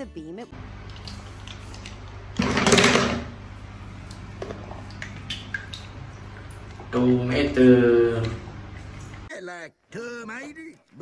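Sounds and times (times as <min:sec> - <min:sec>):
steady low hum: 0:00.5 - 0:09.3
water splash: 0:04.1 - 0:09.3.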